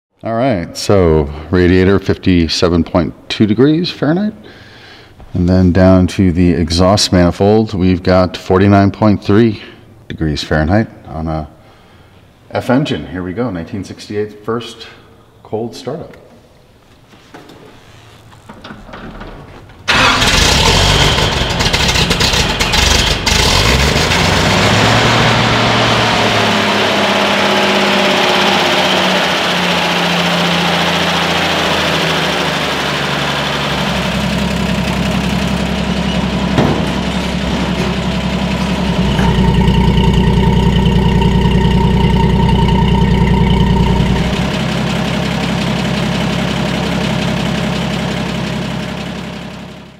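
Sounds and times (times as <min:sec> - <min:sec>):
car engine idling: 0:19.8 - 0:49.9.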